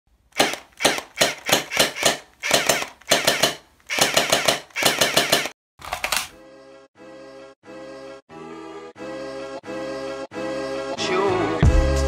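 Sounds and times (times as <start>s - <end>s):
toy blaster firing bursts: 0.3s - 5.6s
music: 6.4s - 12.0s.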